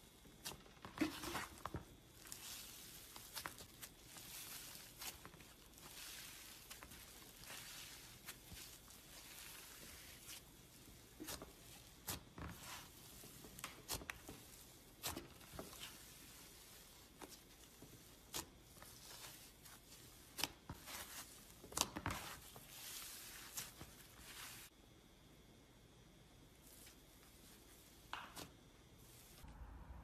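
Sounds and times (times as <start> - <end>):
soft tearing hiss of slime: 0.3 - 24.8, 26.5 - 30.0.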